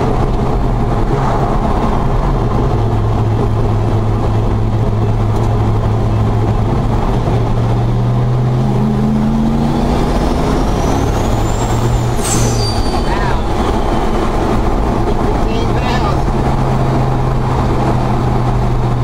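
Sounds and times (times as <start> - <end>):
engine pulling hard: 0.0 - 19.0
turbo whistle: 11.3 - 14.4.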